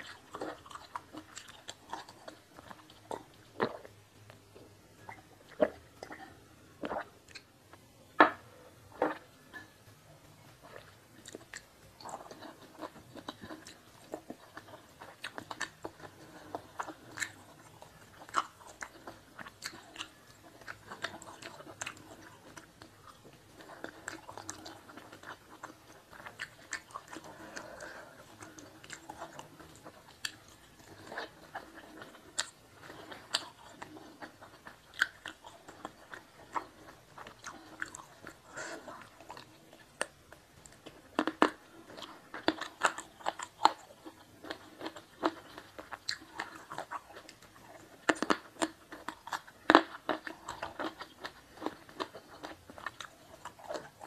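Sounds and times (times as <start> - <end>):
chewing and biting food: 0.0 - 7.9, 10.6 - 54.0.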